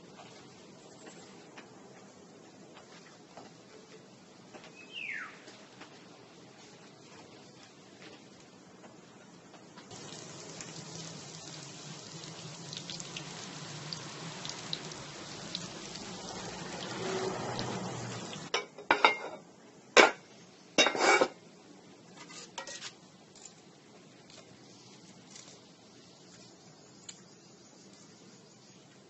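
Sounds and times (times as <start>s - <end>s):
tofu sizzling in hot oil: 9.9s - 18.5s.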